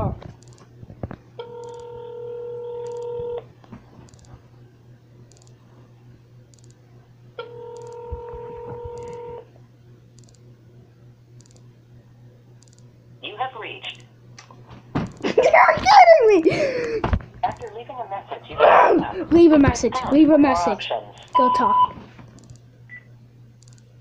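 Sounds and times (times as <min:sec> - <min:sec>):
phone ringback tone: 0:01.4 - 0:03.4, 0:07.4 - 0:09.4.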